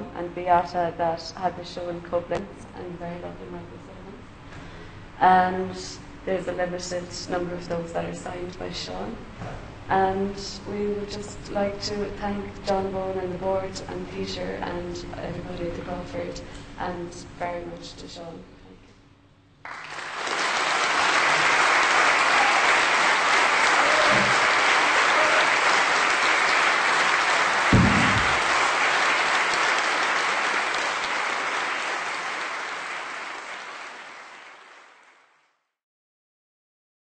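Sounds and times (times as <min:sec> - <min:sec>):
audience applauding: 0:19.6 - 0:35.3
low thump: 0:27.7 - 0:28.5.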